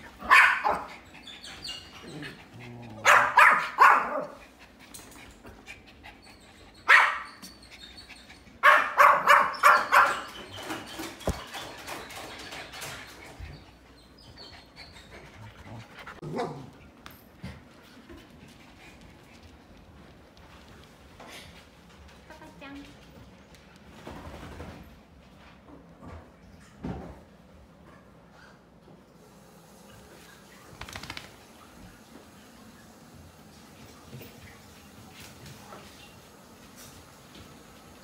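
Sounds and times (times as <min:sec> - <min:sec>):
dog barking: 0:00.2 - 0:00.9, 0:03.0 - 0:04.4, 0:06.9 - 0:07.4, 0:08.6 - 0:10.2.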